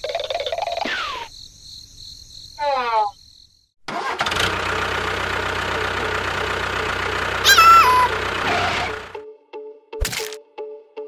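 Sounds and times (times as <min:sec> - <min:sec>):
loud motor running: 0:04.1 - 0:09.2.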